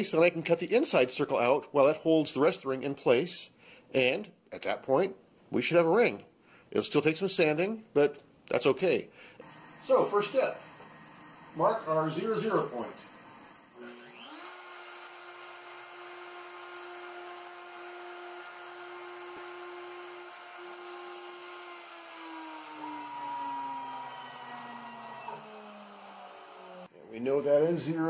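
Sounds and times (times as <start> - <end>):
drilling into wood: 9.4 - 26.9
router spindle whine: 9.4 - 27.7.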